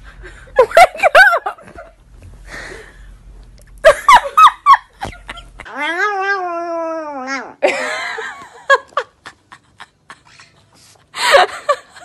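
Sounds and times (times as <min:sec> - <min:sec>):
small dog whining: 0:05.7 - 0:07.6.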